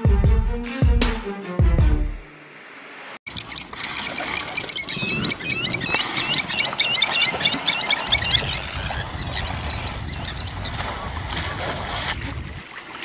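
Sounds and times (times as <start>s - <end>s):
wild dogs twittering: 3.3s - 10.9s.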